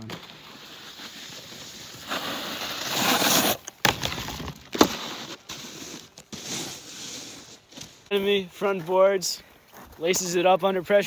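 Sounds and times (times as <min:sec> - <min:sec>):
snowboard scraping over snow: 0:00.0 - 0:03.6, 0:04.8 - 0:08.0
snowboard sliding on metal bar: 0:04.8 - 0:08.0.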